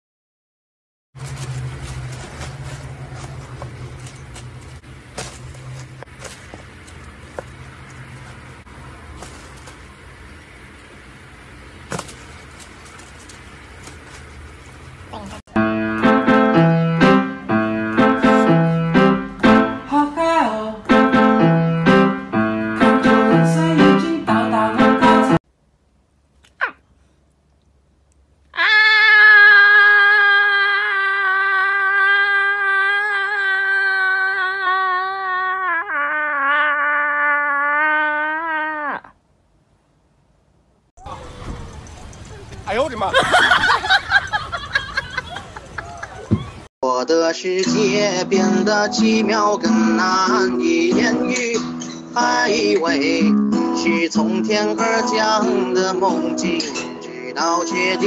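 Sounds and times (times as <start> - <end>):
low background hum: 1.2 - 15.5
person holding a high aah: 28.5 - 39.2.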